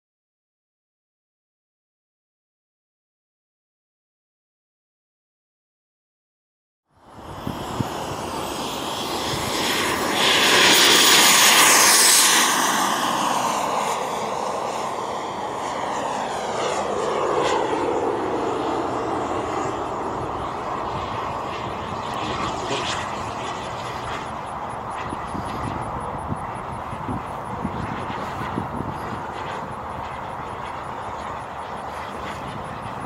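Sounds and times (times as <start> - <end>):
jet turbine engine whining: 7.0 - 33.0.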